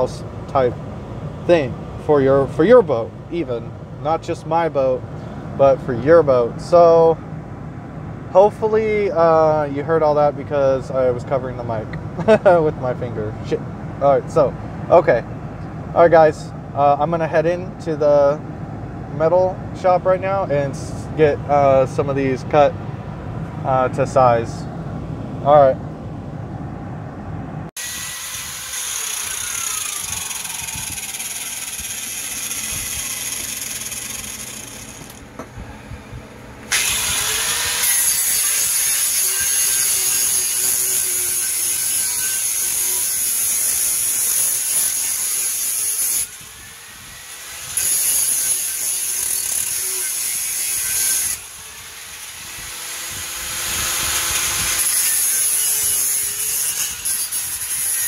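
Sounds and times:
angle grinder cutting metal: 0:27.8 - 0:35.4, 0:36.7 - 0:58.0.

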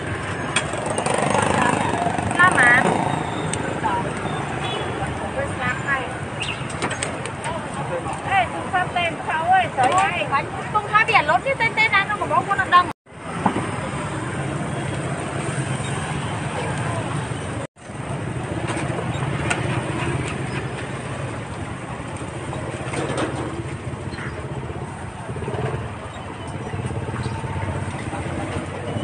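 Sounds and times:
motorbike engines passing: 0:00.0 - 0:29.0
people talking: 0:01.4 - 0:06.3, 0:07.1 - 0:12.9.

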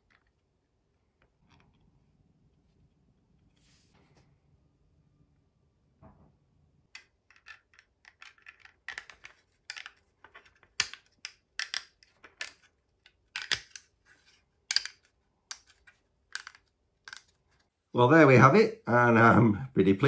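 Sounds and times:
plastic parts clicking and scraping: 0:07.0 - 0:17.7.

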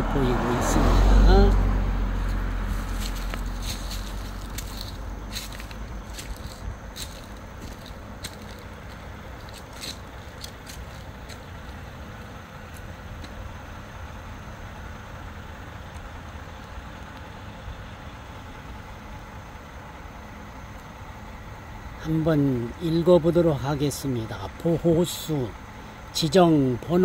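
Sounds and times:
steady low rumble: 0:00.0 - 0:26.1
footsteps on gravel: 0:01.5 - 0:11.8.

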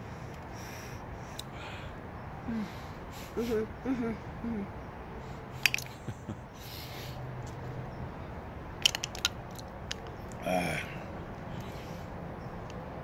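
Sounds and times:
wet mouth clicks and smacks: 0:05.6 - 0:06.0, 0:08.8 - 0:10.4
short vocal grunt: 0:10.4 - 0:11.0.

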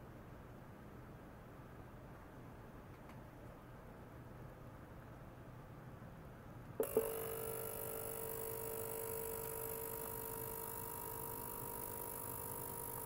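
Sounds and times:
ultrasonic cleaner clicks: 0:06.8 - 0:07.3, 0:08.2 - 0:13.0
ultrasonic cleaner tone and hiss: 0:06.8 - 0:13.0.

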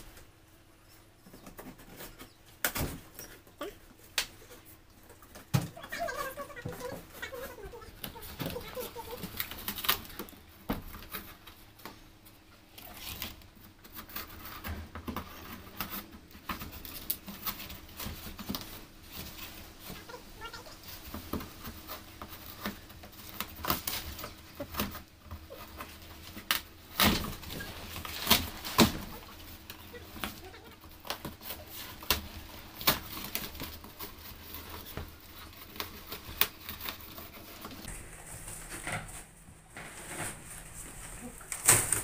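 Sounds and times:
cardboard ripping and crackling: 0:05.9 - 0:11.3, 0:15.4 - 0:42.0.

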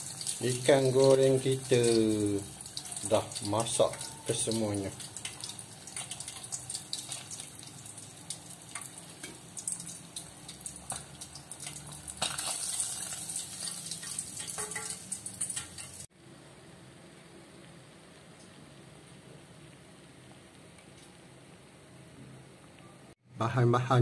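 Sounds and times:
fish deep-frying in hot oil: 0:00.0 - 0:16.6.

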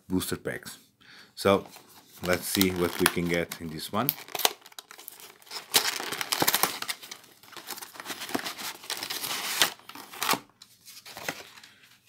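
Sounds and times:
plastic packaging crinkling: 0:02.2 - 0:11.7.

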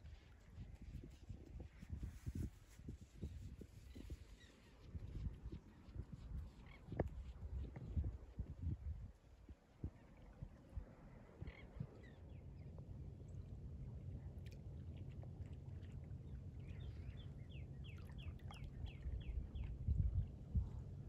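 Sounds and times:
low steady rumble: 0:04.5 - 0:21.0.

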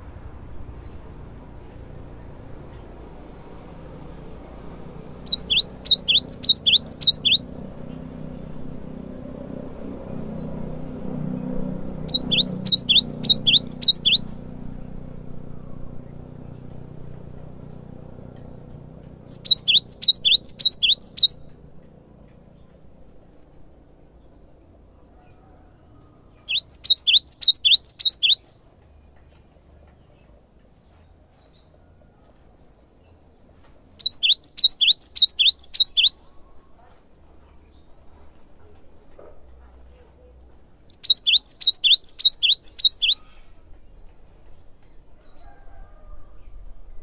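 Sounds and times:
bird singing high repeated notes: 0:05.2 - 0:07.5, 0:12.0 - 0:14.4, 0:19.3 - 0:21.4, 0:26.5 - 0:28.6, 0:34.0 - 0:36.2, 0:40.9 - 0:43.2.

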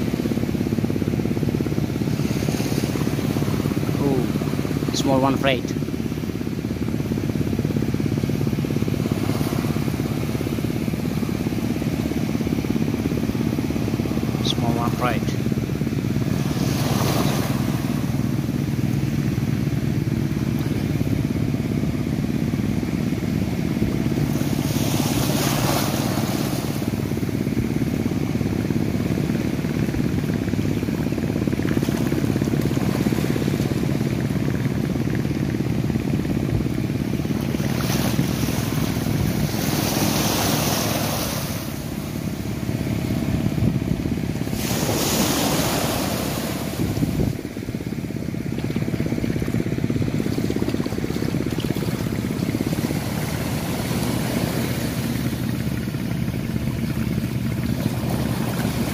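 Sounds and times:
low engine hum: 0:00.0 - 0:58.9
small waves washing on a beach: 0:00.0 - 0:58.9.

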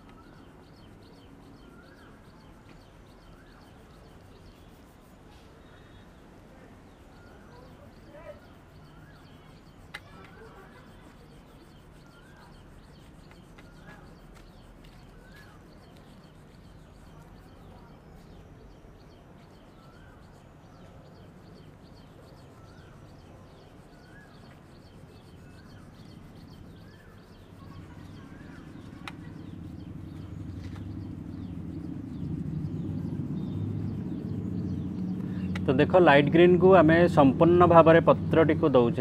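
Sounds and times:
bird chirping: 0:00.0 - 0:39.0
low steady rumble: 0:23.8 - 0:39.0.

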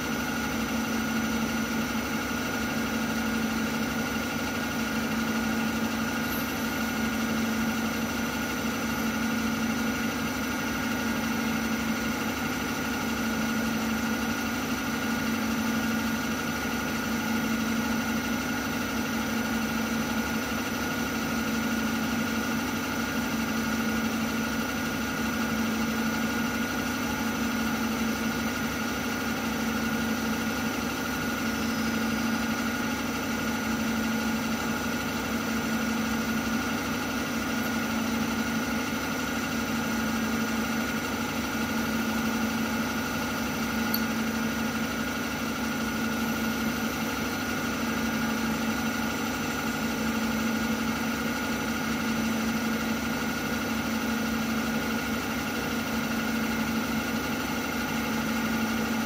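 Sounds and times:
milling machine spindle humming: 0:28.3 - 0:48.4.

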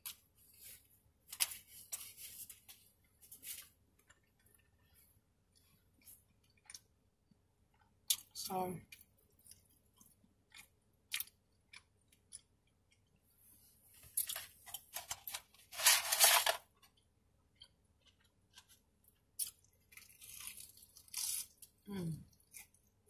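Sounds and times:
paper rustling: 0:14.9 - 0:16.6.

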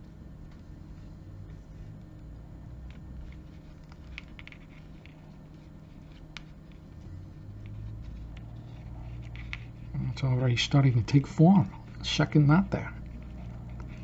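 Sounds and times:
low steady hum: 0:00.0 - 0:14.0
leather cord rubbing: 0:02.8 - 0:14.0.

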